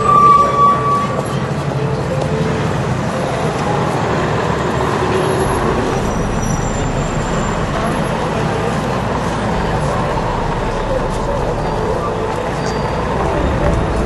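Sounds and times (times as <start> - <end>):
traffic rumble and tyre hiss: 0.0 - 14.0.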